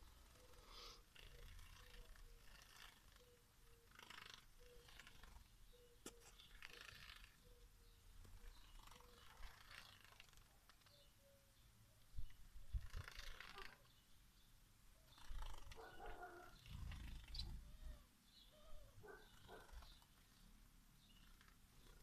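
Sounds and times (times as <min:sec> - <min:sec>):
wings fluttering: 0:15.2 - 0:17.7.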